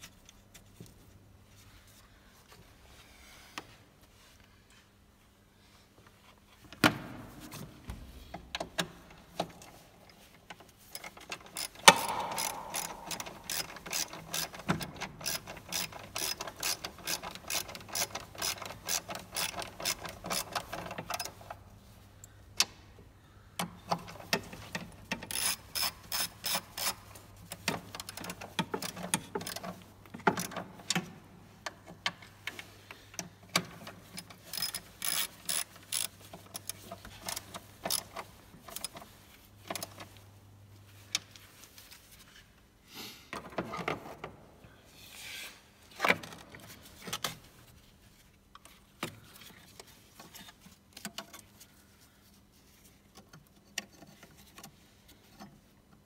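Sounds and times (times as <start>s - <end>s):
ratchet wrench clicking: 11.5s - 20.7s, 25.2s - 27.0s, 34.5s - 38.9s.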